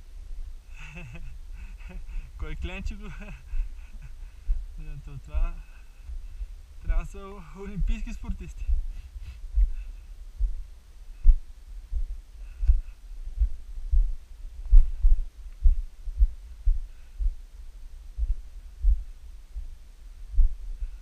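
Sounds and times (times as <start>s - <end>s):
steady low rumble: 0.0s - 21.0s
footsteps on rocky ground: 5.4s - 17.4s.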